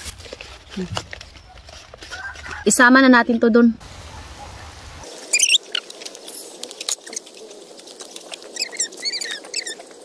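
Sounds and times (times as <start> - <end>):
fat crackling on hot coals: 0.0 - 3.2, 3.8 - 10.0
high squeaky chirps: 5.3 - 5.8, 8.5 - 10.0.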